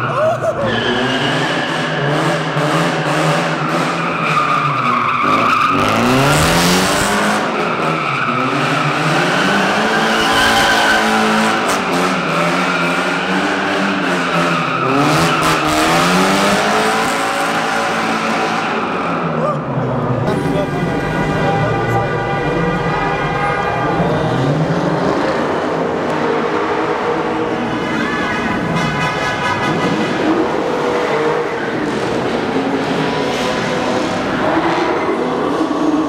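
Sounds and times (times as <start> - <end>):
car engine revving: 0.8 - 19.3.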